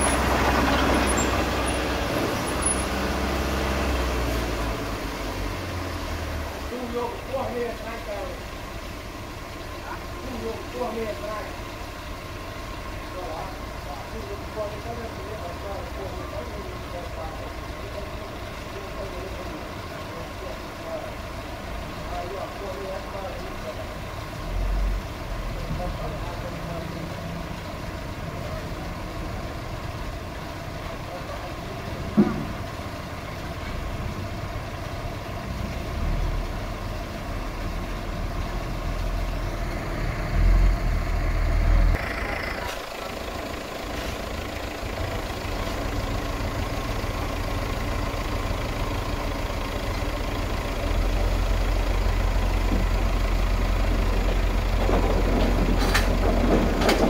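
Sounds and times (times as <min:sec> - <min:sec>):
diesel truck engine running: 0:00.0 - 0:57.0
dirt sliding off: 0:42.0 - 0:45.8.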